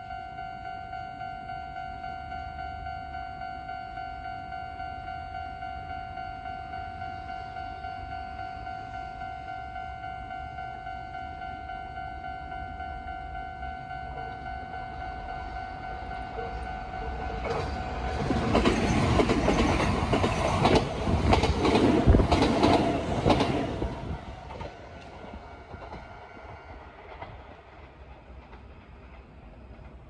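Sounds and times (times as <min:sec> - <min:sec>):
electric train passing: 0:00.0 - 0:30.0
wheels clicking over rail joints: 0:16.3 - 0:30.0.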